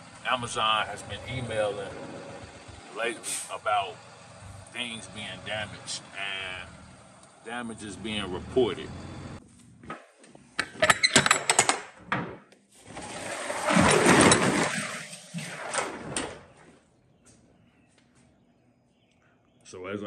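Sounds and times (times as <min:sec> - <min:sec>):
metal latch clacks: 0:10.6 - 0:12.2
roll-up door rattling open: 0:12.8 - 0:16.6.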